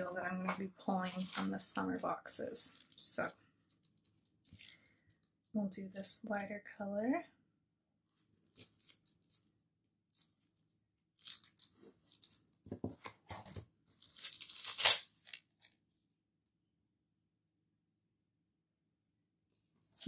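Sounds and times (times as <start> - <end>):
sticker sheets rustling and crinkling: 0.4 - 5.3, 8.1 - 15.8.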